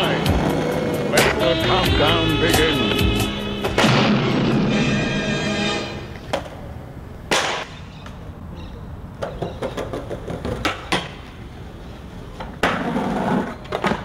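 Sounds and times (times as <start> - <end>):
skateboard knocks and slaps: 9.2 - 11.4, 12.4 - 14.0.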